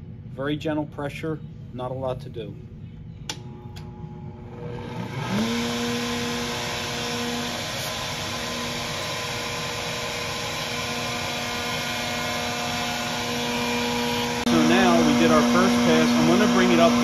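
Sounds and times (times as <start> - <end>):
wood router whining: 4.5 - 17.0.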